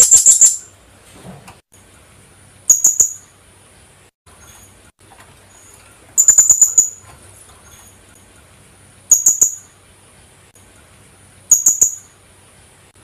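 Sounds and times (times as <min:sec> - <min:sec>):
parrot shrill calls: 0:06.2 - 0:07.0.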